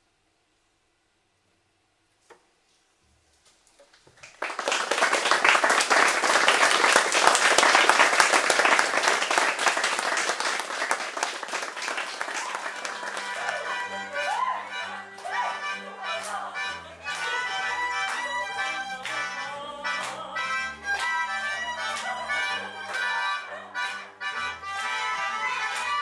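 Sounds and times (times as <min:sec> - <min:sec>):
audience applause: 0:04.1 - 0:19.2, 0:21.8 - 0:24.0.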